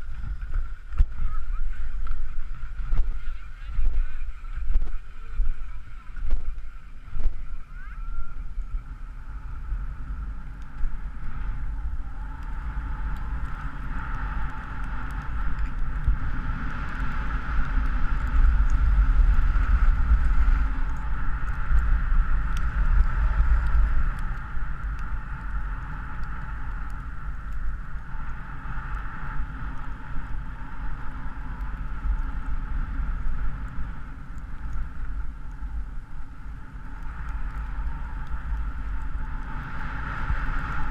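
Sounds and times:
skis sliding over snow: 0:00.0 - 0:40.9
wind buffeting microphone: 0:00.0 - 0:40.9.

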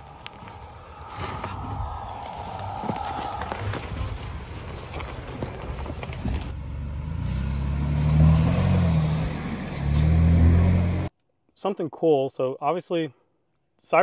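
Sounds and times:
tyres crunching over twigs: 0:00.0 - 0:06.6
engine revving hard: 0:06.9 - 0:11.1.

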